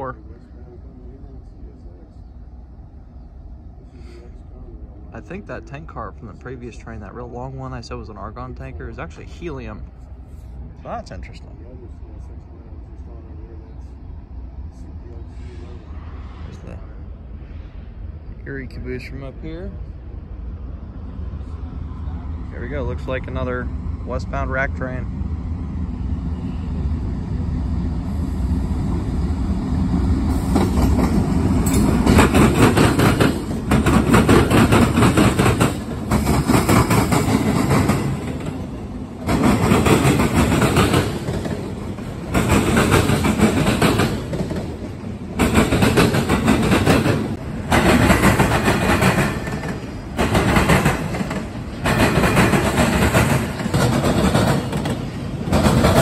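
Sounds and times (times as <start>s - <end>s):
diesel locomotive drone: 0.0s - 56.0s
train wheel clatter: 30.3s - 56.0s.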